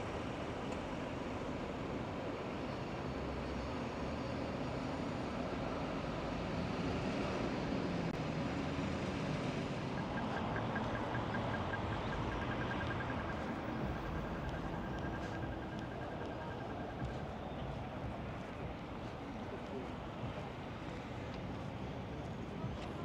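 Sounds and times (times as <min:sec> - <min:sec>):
traffic hum: 0:00.0 - 0:23.0
cars passing: 0:05.5 - 0:23.0.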